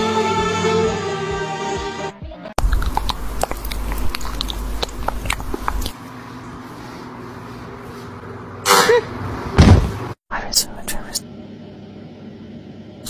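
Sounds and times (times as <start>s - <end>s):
steady hum: 2.6s - 13.0s.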